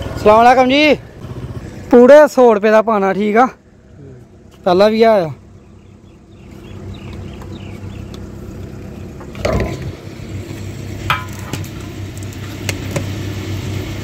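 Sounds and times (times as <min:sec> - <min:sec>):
pump motor humming: 0:06.6 - 0:14.0.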